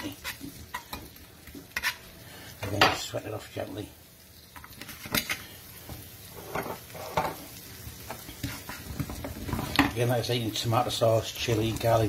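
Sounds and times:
spatula scraping pan: 0.0s - 2.8s, 4.7s - 5.6s, 6.3s - 10.0s
onions sizzling in oil: 0.0s - 12.0s.

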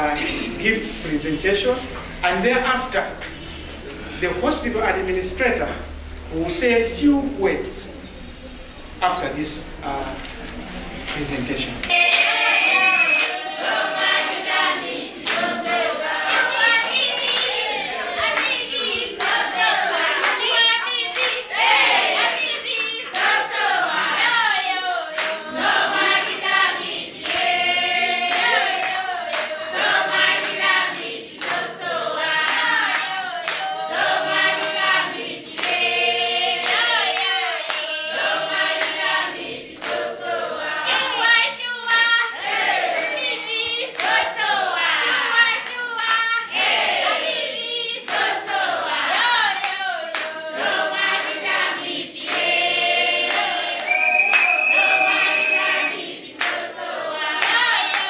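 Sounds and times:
group singing: 0.0s - 58.0s
hand clapping: 11.8s - 13.4s, 14.1s - 14.4s, 15.2s - 15.6s, 20.2s - 21.4s, 22.2s - 24.4s, 25.1s - 26.4s, 27.2s - 27.6s, 28.2s - 29.6s, 31.3s - 31.7s, 32.4s - 38.0s, 38.6s - 40.1s, 49.1s - 51.6s, 52.2s - 58.0s.

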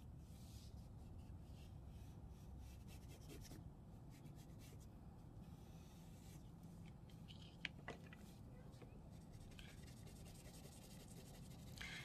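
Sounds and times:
low steady hum: 0.0s - 12.0s
crayon rubbing on paper: 9.1s - 12.0s.

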